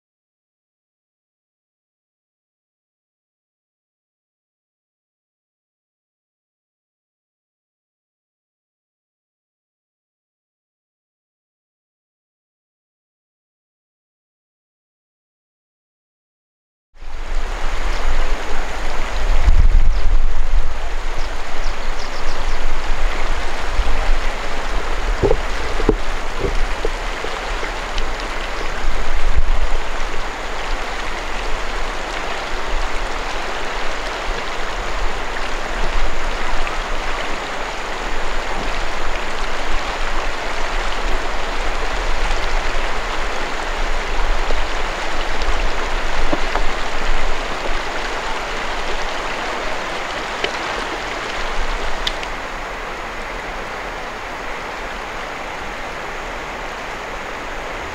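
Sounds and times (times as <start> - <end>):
river rushing over stones: 17.0 - 57.9.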